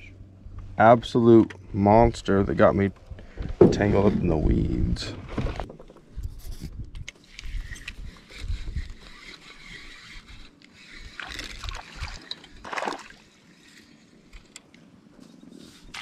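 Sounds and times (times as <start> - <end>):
water sloshing around a boat: 10.9 - 14.1
splashes: 11.2 - 13.2.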